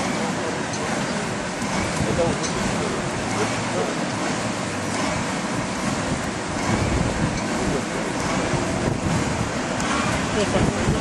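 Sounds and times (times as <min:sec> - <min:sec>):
wind buffeting microphone: 0:01.3 - 0:03.3, 0:05.4 - 0:11.0.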